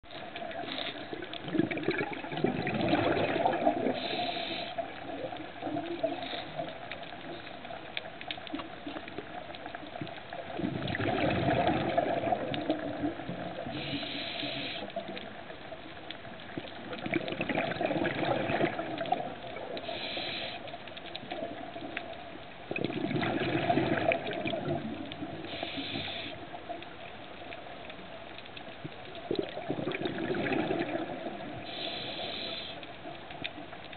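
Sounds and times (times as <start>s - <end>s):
exhaled bubbles gurgling underwater: 0.0s - 33.9s
regulator inhalation hiss: 3.9s - 5.0s, 13.7s - 15.0s, 19.8s - 20.8s, 25.4s - 26.4s, 31.6s - 32.9s.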